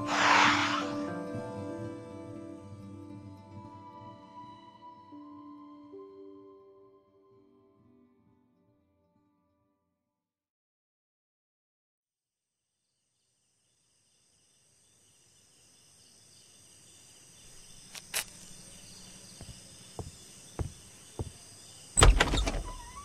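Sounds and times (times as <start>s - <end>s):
crickets chirring: 13.0s - 23.0s
slow footsteps: 17.5s - 21.5s.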